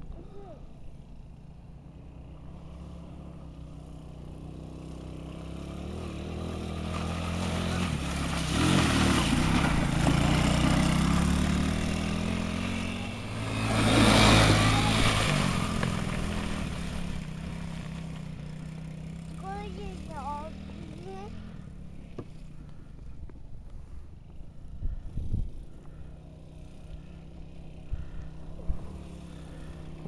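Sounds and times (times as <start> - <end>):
atv engine revving: 0.0 - 30.0
tyres churning through mud: 5.0 - 21.5.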